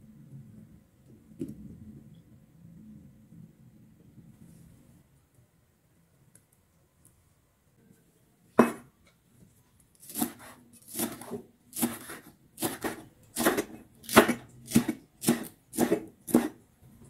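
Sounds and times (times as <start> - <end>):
knife slicing on wooden board: 10.0 - 16.6.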